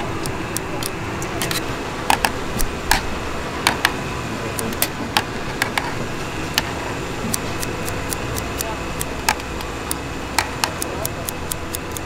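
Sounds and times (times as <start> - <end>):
low background hum: 0.0 - 12.0
sharp clicks and light knocks: 7.3 - 12.0.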